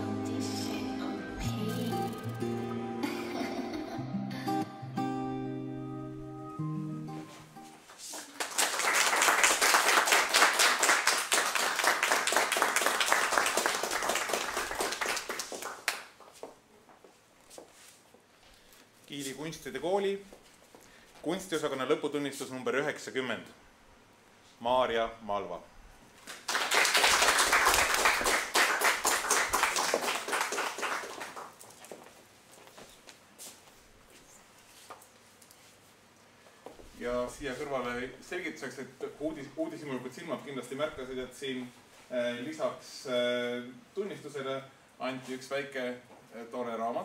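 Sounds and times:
small audience applauding: 8.0s - 16.3s, 26.2s - 32.1s.

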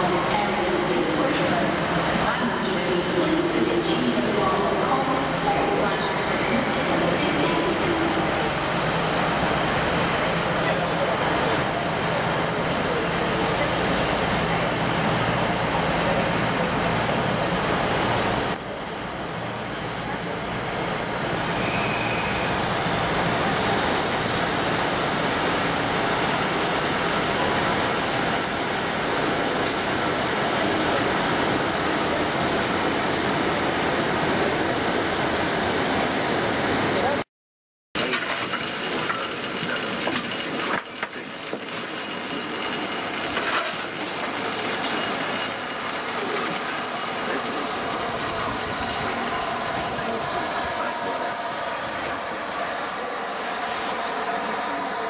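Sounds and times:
steam locomotive passing: 0.0s - 37.2s, 38.0s - 55.0s
hissing steam: 38.0s - 55.0s.

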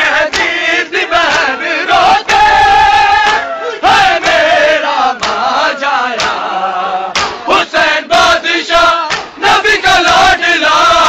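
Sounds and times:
men chanting a lament in chorus: 0.0s - 11.0s
chest-beating slaps: 0.3s - 0.6s, 3.2s - 3.5s, 5.2s - 5.5s, 6.2s - 6.4s, 7.1s - 7.5s, 9.0s - 10.2s.

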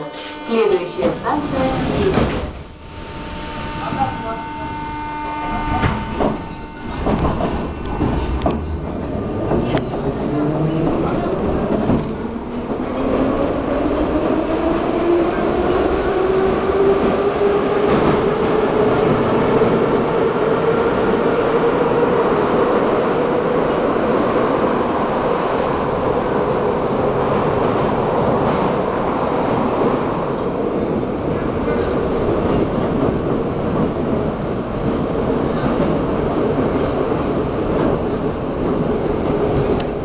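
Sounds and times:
train motor whine: 0.0s - 9.8s
wheels rumbling on rail: 0.1s - 40.0s.

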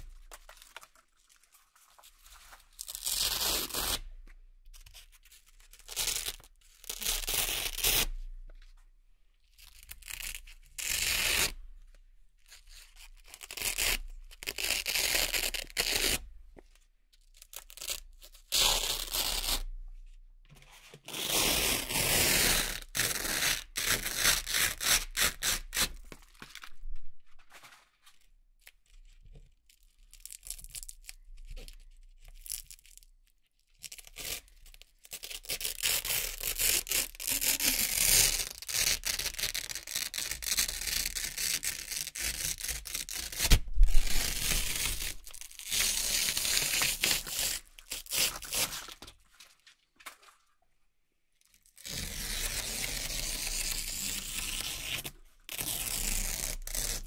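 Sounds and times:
velcro strips ripping apart: 2.8s - 4.0s, 5.8s - 8.1s, 33.8s - 49.1s, 51.6s - 57.0s.

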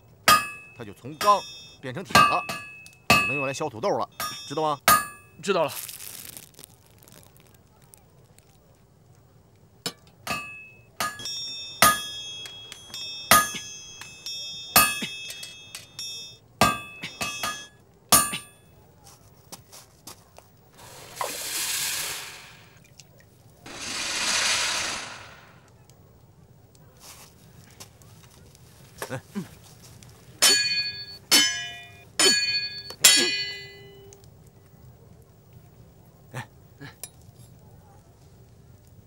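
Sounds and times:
hot blade quenching hiss: 20.8s - 22.8s, 23.7s - 25.6s.

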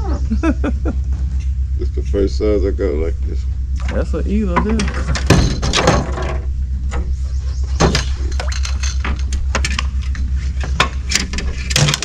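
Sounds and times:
steady low rumble: 0.0s - 12.0s
fishing tackle clicking in metal boat: 7.9s - 12.0s.

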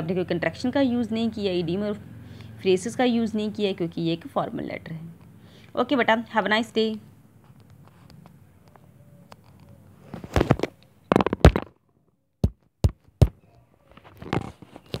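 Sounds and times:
sharp taps: 12.4s - 13.4s.

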